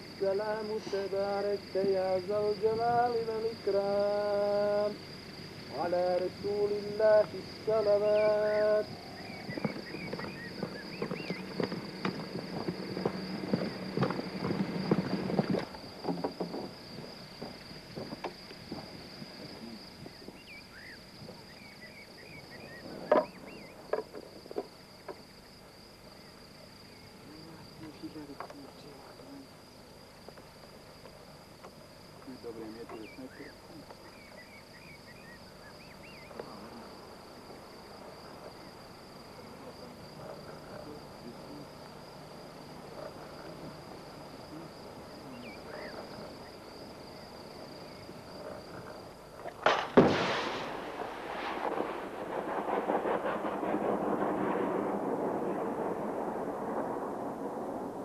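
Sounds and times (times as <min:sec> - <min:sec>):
insects chirring: 0:00.0 - 0:58.0
footsteps: 0:08.9 - 0:20.4.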